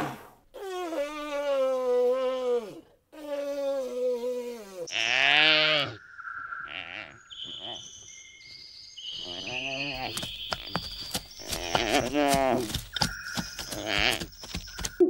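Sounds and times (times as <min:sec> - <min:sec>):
animal bleating cries: 0:04.8 - 0:06.0, 0:13.7 - 0:14.3.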